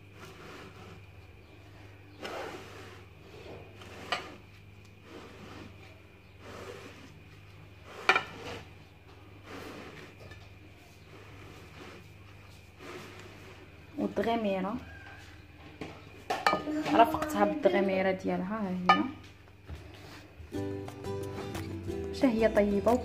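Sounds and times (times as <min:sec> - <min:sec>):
soft rubbing and handling noises: 0:00.0 - 0:14.2, 0:19.6 - 0:20.5.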